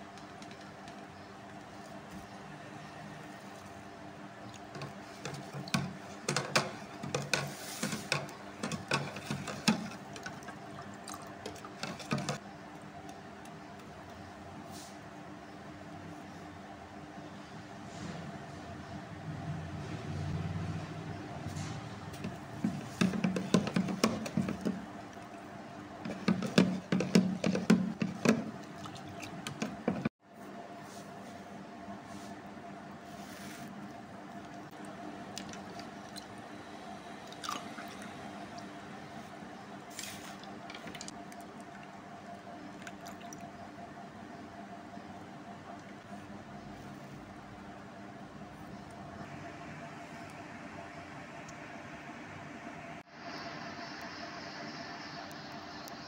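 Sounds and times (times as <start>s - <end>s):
faint steady hum: 0.0s - 56.0s
liquid sloshing: 4.5s - 12.4s, 22.2s - 30.1s, 34.4s - 36.5s, 37.2s - 38.7s, 42.7s - 43.6s.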